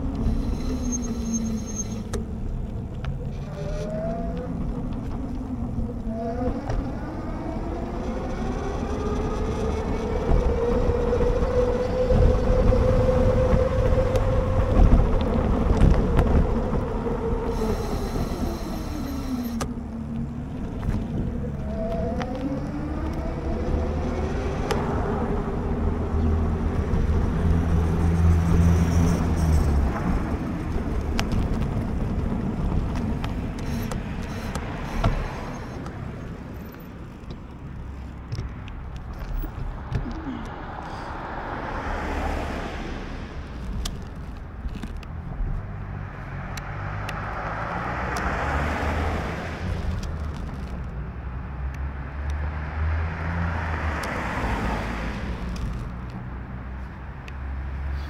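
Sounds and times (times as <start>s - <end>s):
cars passing with tyre hiss: 0.0s - 2.5s, 16.4s - 20.4s, 23.6s - 31.8s, 33.0s - 44.6s, 45.6s - 50.8s, 51.4s - 58.0s
wind rumbling on microphone: 0.0s - 57.9s.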